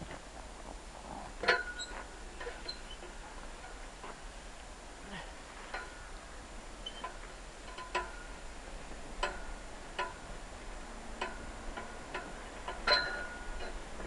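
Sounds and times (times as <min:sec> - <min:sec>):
metal pull-up bar clicking and creaking: 0:01.4 - 0:04.2, 0:05.6 - 0:06.2, 0:06.8 - 0:14.0.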